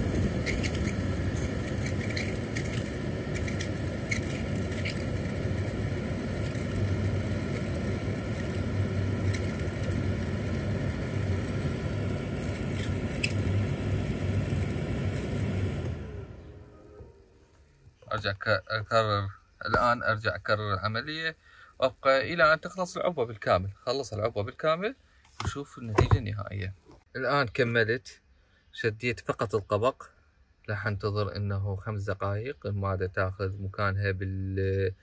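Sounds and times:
car blower fan humming: 0.0s - 18.2s.

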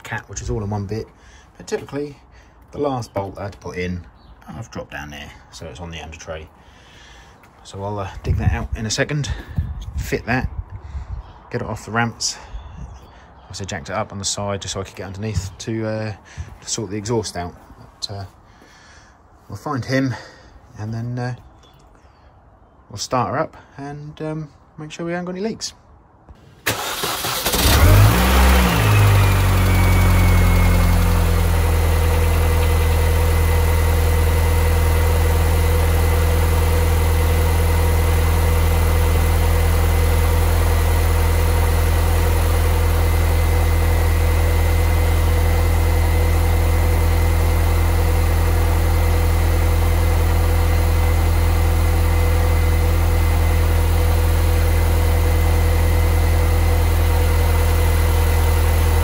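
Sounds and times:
engine cranking: 26.7s - 31.2s
engine idling: 26.7s - 59.0s.

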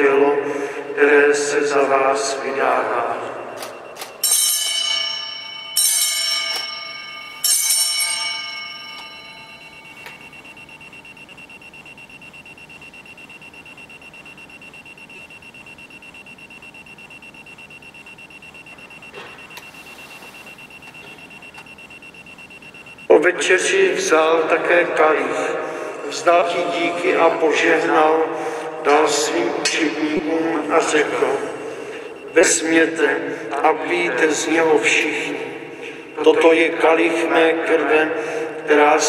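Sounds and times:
bell ringing: 3.4s - 15.7s.

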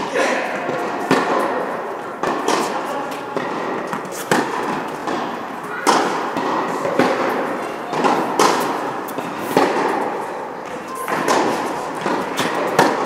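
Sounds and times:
tennis ball struck by rackets: 0.0s - 13.0s.

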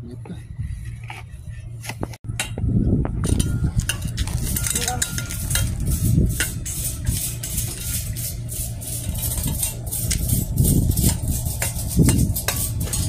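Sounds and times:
low rumble: 0.0s - 13.0s
brush scrubbing metal wire: 3.3s - 13.0s.

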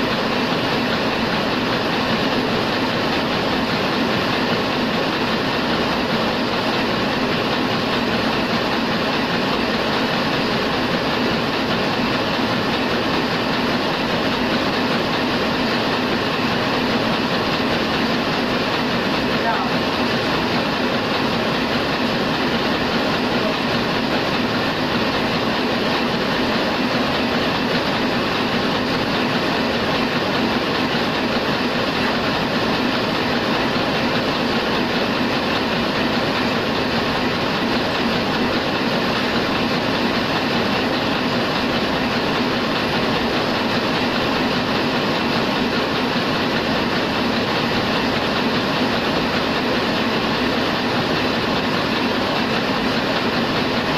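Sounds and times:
printing press running: 0.0s - 53.9s.

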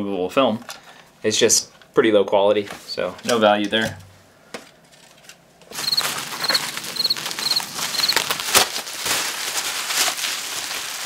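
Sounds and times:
bubble wrap crinkling and crackling: 5.7s - 11.0s.

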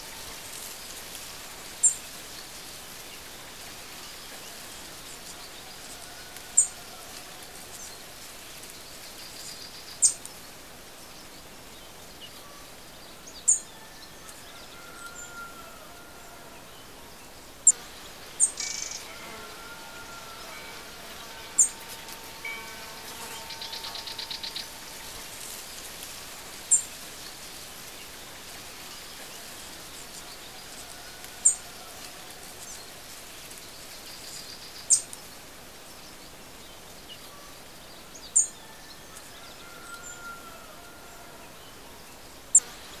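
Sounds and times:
outdoor ambience hiss: 0.0s - 43.0s
birds chirping: 16.8s - 30.5s
bird trill: 18.4s - 25.6s.

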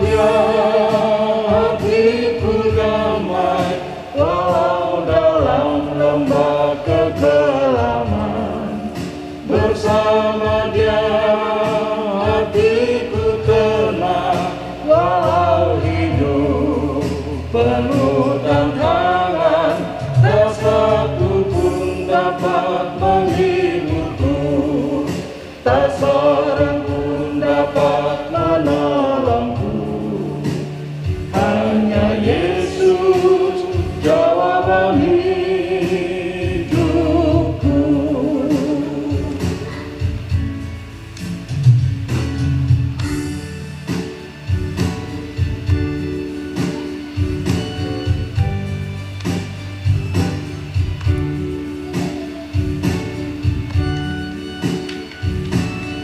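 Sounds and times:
group singing together: 0.0s - 40.4s.

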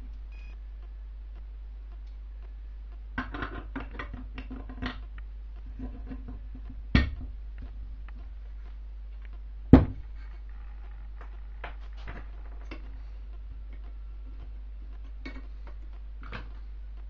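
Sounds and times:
sharp knock: 9.7s - 10.0s.

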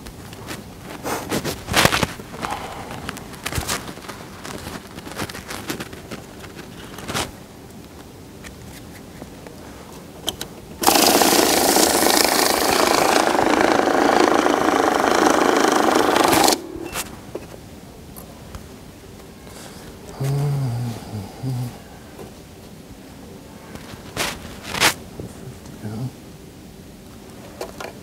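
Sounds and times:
banknote counting machine whirring: 10.8s - 17.0s.

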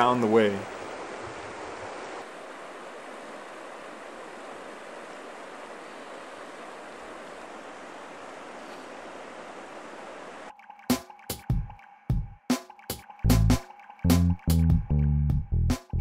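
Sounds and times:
river water flowing over gravel: 0.0s - 10.5s.

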